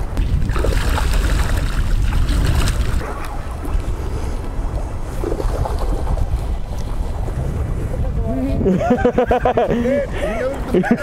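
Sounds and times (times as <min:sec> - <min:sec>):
wind buffeting microphone: 0:00.0 - 0:11.0
splashing sea water: 0:00.2 - 0:07.4.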